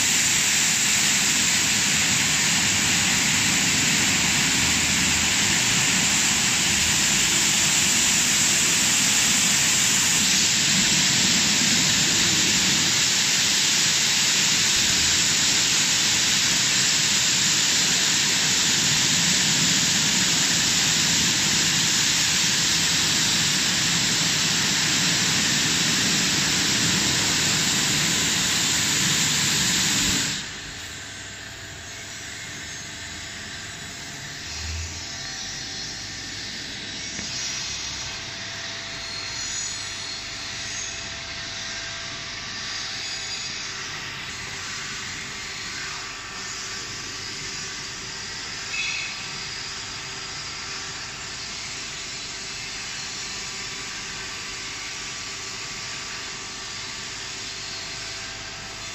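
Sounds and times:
car wash machine hum: 0:00.0 - 0:58.9
high-pressure water spray hiss: 0:00.0 - 0:58.9
spray arm whine: 0:00.0 - 0:58.9.

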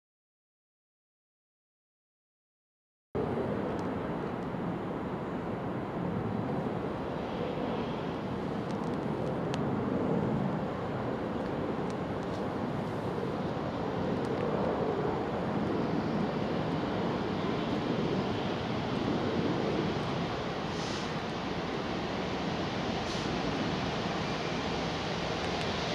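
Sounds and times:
distant diesel locomotives droning: 0:10.2 - 0:25.9.

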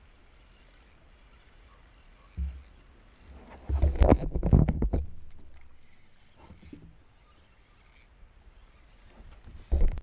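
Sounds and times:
dull thump: 0:02.4 - 0:02.6, 0:03.5 - 0:05.2, 0:09.2 - 0:10.0.

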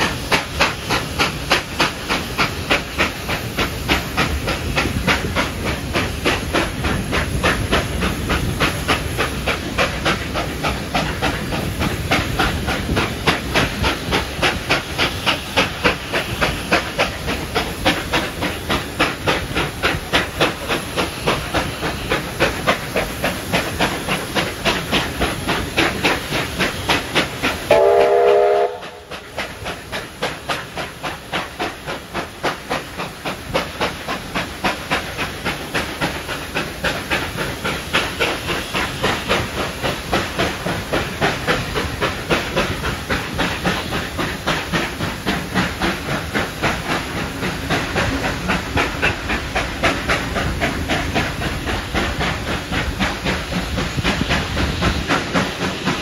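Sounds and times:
steam locomotive exhaust beats: 0:00.0 - 0:56.0
train wheels on rails: 0:00.0 - 0:56.0
steam whistle: 0:27.7 - 0:29.2.

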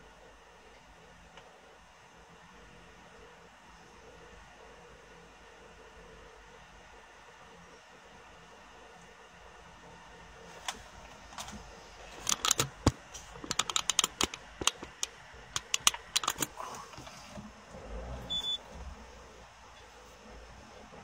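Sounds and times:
sharp clicks and taps: 0:12.2 - 0:16.5
high beep: 0:18.3 - 0:18.6.

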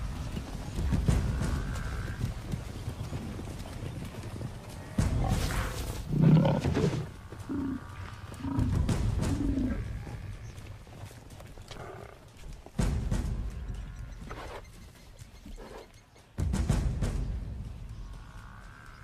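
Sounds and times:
lion growling and snarling: 0:05.1 - 0:10.2.

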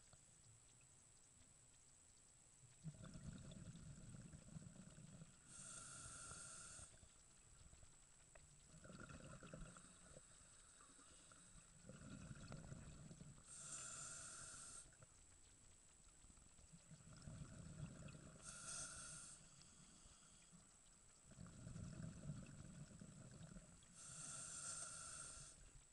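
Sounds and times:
diver exhaling bubbles: 0:02.8 - 0:05.2, 0:08.7 - 0:10.2, 0:11.3 - 0:13.3, 0:21.3 - 0:23.7
regulator inhale hiss: 0:05.4 - 0:07.1, 0:09.8 - 0:11.7, 0:13.4 - 0:15.0, 0:18.4 - 0:20.7, 0:23.9 - 0:25.7.

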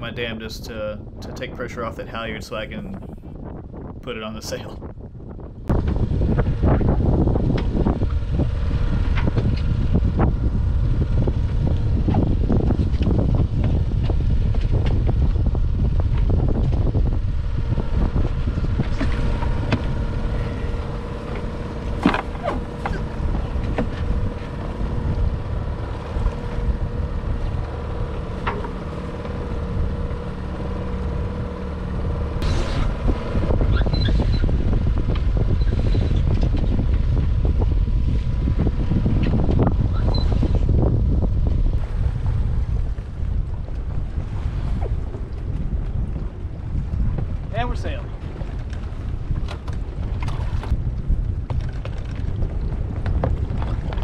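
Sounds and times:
wind buffeting microphone: 0:00.0 - 0:54.0.

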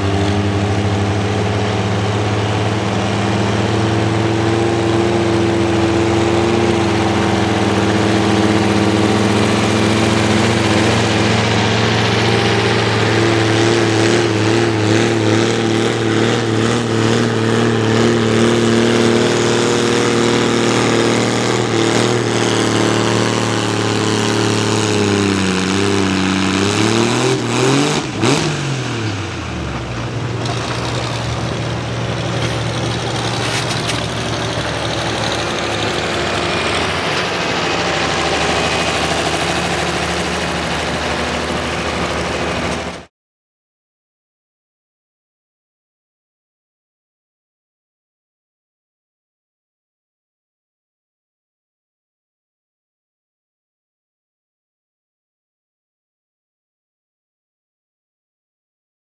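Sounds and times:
tractor engine under load: 0:00.0 - 0:43.1.

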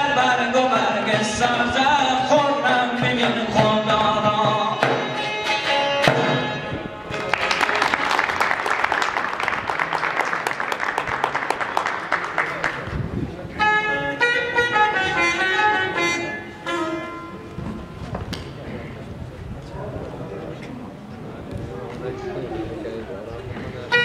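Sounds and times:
man singing: 0:00.0 - 0:05.2
strummed lutes: 0:00.0 - 0:07.9, 0:13.4 - 0:19.0, 0:23.6 - 0:24.0.

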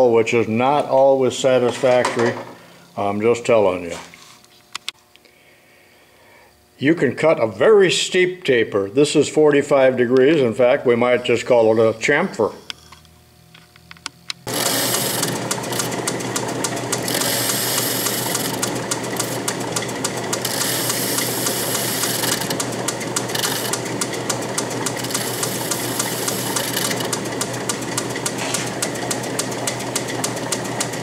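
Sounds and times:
lathe humming: 0:14.4 - 0:31.0
rapid regular ticking: 0:14.5 - 0:28.3.

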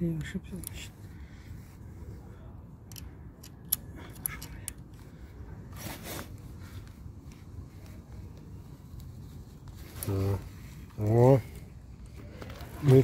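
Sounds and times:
hex key clicking on metal: 0:02.9 - 0:04.9
short rustle: 0:05.0 - 0:13.0.

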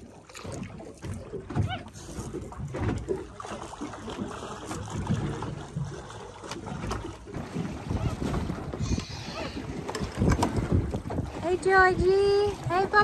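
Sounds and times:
water lapping against hull: 0:00.0 - 0:13.0
wind buffeting microphone: 0:07.4 - 0:13.0.

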